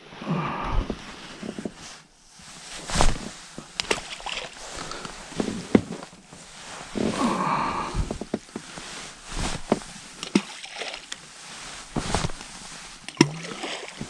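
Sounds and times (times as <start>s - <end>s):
water sloshing in a boat: 3.8s - 6.2s, 9.6s - 14.0s.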